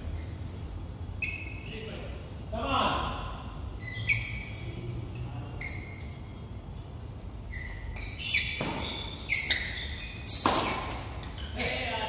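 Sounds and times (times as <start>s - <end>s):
sneakers squeaking on court floor: 1.2s - 2.0s, 3.8s - 4.8s, 5.5s - 6.3s, 7.4s - 12.0s
racket hitting shuttlecock: 10.2s - 11.2s.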